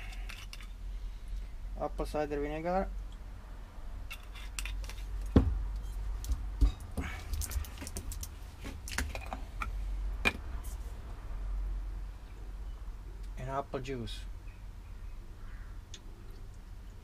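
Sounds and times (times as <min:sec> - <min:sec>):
low steady rumble: 0:05.0 - 0:17.0.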